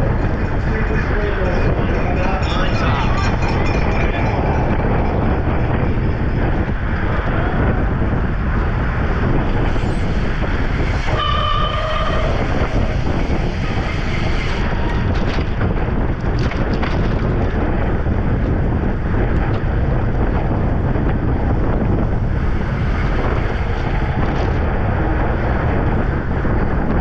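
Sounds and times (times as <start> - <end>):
wind on microphone: 0.0 - 27.0
brief horn-like tone: 11.2 - 12.6.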